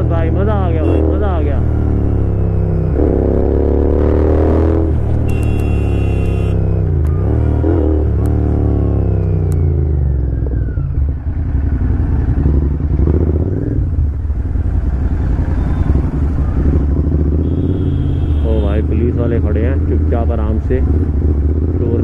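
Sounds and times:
motorcycle engine running: 10.0 - 18.5.

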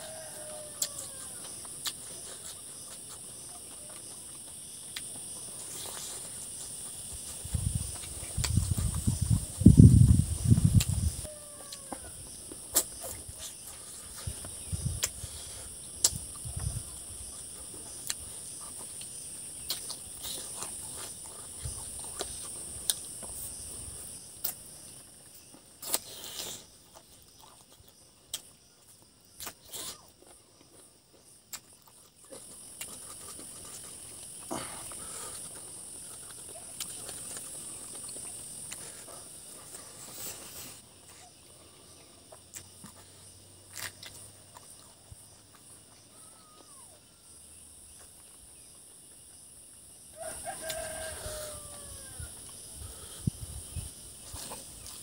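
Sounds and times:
insects droning: 0.0 - 55.0
man chewing and lip-smacking: 0.8 - 11.7, 12.4 - 40.5, 42.3 - 43.1, 43.7 - 46.0, 54.2 - 55.0.

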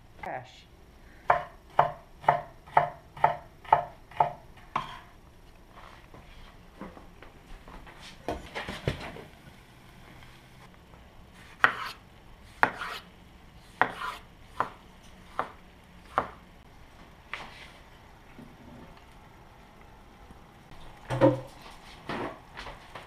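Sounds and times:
knife chopping on wooden board: 1.3 - 5.0, 11.6 - 12.0, 12.6 - 13.0, 13.8 - 16.4.

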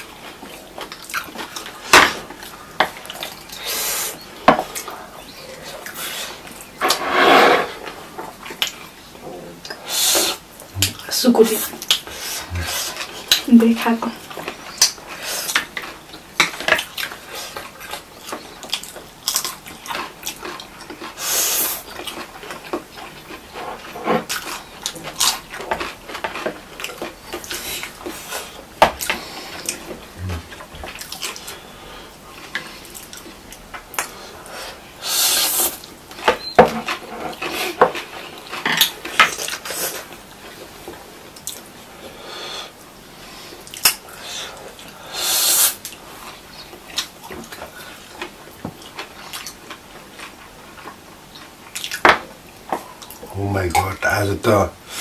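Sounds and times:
noodles slurped and chewed: 9.6 - 42.1.

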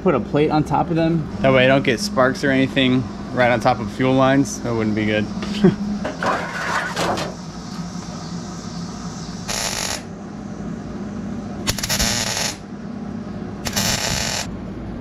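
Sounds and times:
welder arc crackling: 9.4 - 10.1, 11.7 - 12.6, 13.6 - 14.5.

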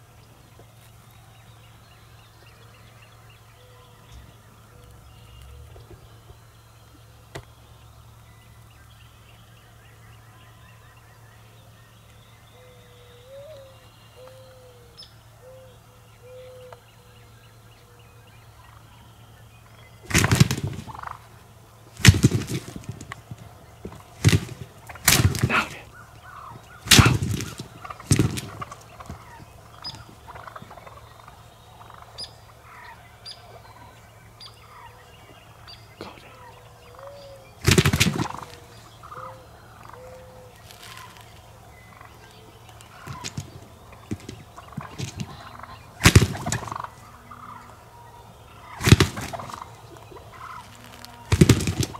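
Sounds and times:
turkeys gobbling: 13.5 - 51.9.

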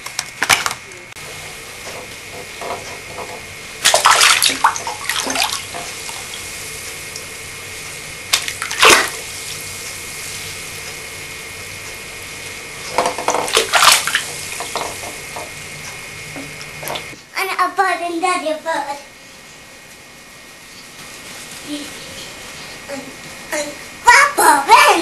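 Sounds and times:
bathwater splashing: 2.5 - 7.3, 8.2 - 10.0, 12.5 - 17.2.

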